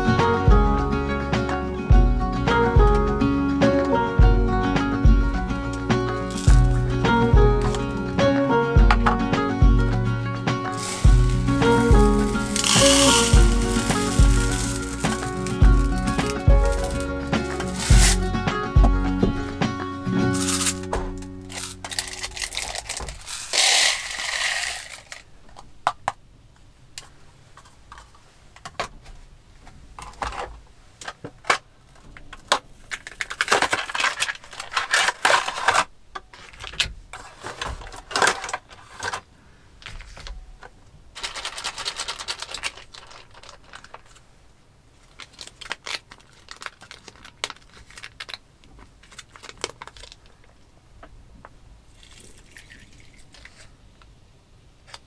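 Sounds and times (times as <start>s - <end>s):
granules shaken from carton: 6.3s - 6.8s, 10.7s - 18.2s, 20.4s - 20.9s, 21.5s - 25.2s, 41.2s - 44.2s
paper rustling: 6.3s - 6.8s, 10.7s - 18.2s, 20.4s - 25.2s, 32.9s - 39.3s, 41.2s - 44.2s
rice grains poured into pot: 10.7s - 18.2s, 23.2s - 25.2s.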